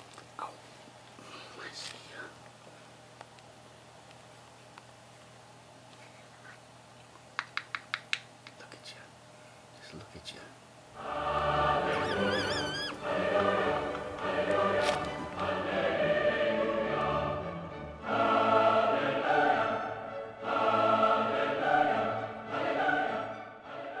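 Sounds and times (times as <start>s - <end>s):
choir singing chords: 10.9s - 24.0s.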